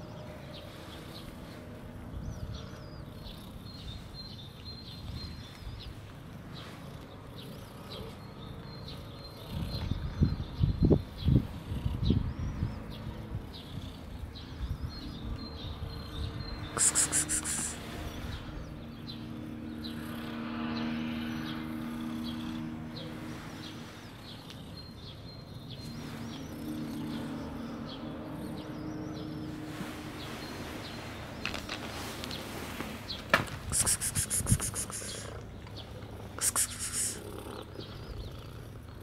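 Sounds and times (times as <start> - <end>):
faint bird chirps: 16.0 - 18.0.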